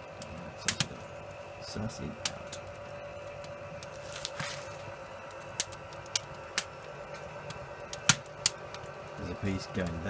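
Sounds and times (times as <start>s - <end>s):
faint steady hum: 0.0s - 10.0s
wood fire crackling: 0.0s - 10.0s
sharp pops of fire: 0.2s - 1.1s, 3.4s - 9.0s.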